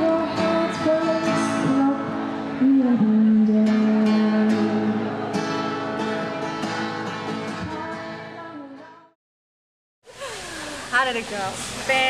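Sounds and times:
strummed acoustic guitar music: 0:00.0 - 0:09.1.

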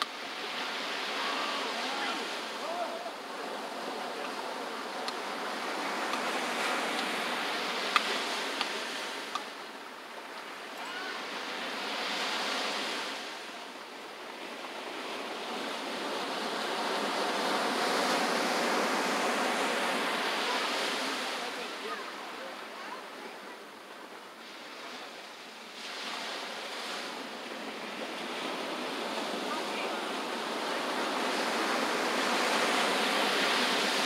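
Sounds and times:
ocean surf washing in: 0:00.0 - 0:34.0.

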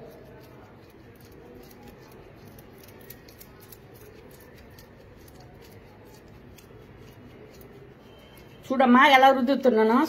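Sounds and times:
gritty sugar scratching on skin: 0:00.0 - 0:10.0.

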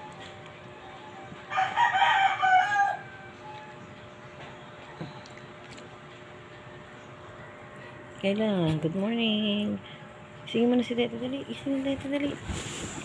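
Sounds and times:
rooster crowing: 0:01.5 - 0:03.4.

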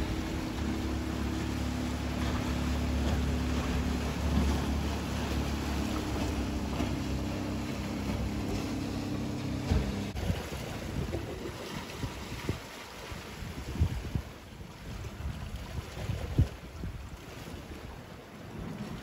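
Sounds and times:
outboard motor running: 0:00.0 - 0:19.0
wind: 0:00.0 - 0:19.0
short knocks: 0:09.5 - 0:10.2.

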